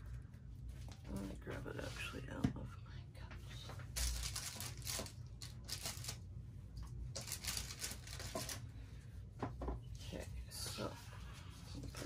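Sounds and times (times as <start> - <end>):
packaging rustling and crinkling: 3.8 - 6.3, 7.1 - 8.7.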